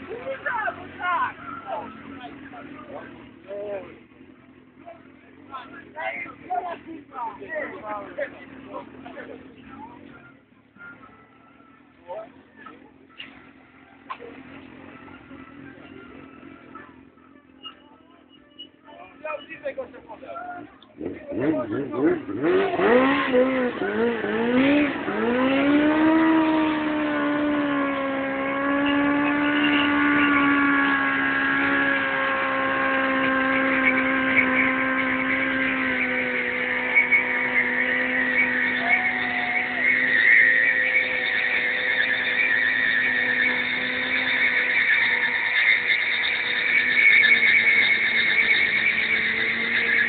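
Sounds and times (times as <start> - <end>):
tyre screeching: 16.3 - 50.0
motorcycle engine revving high: 20.9 - 50.0.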